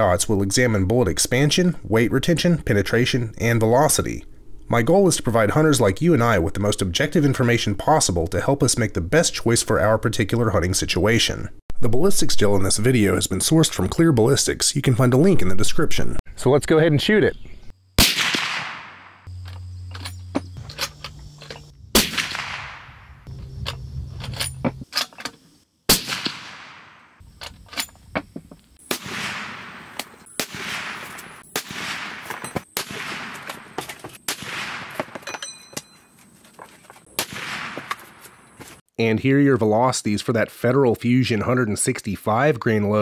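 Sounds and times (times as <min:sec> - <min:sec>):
suppressed rifle shots: 0:18.0 - 0:19.3, 0:22.0 - 0:23.3, 0:25.9 - 0:27.2, 0:28.9 - 0:35.2, 0:37.2 - 0:38.0.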